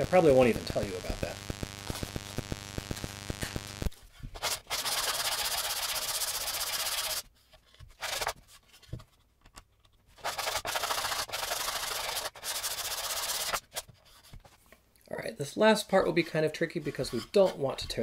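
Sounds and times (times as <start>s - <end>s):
sandpaper rubbing on wood: 4.4s - 7.2s, 10.2s - 13.6s.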